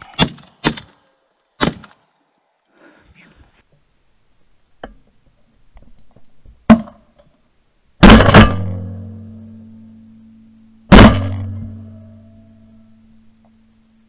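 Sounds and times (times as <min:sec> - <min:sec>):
shotgun shots: 0:00.1 - 0:01.0, 0:01.6 - 0:02.0, 0:08.0 - 0:08.8, 0:10.9 - 0:11.5
low ringing hum: 0:07.6 - 0:14.0.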